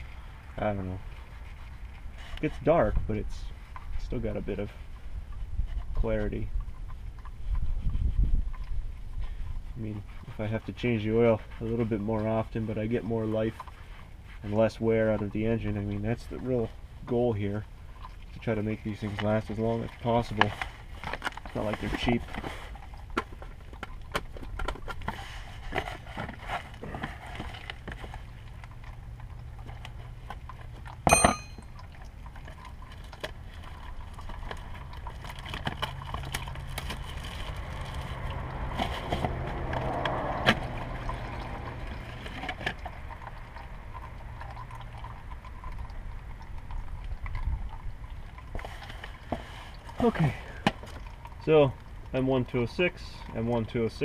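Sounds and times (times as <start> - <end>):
handling clicks and rustling: 18.2 - 54.0
sharp ringing clink: 31.1 - 31.7.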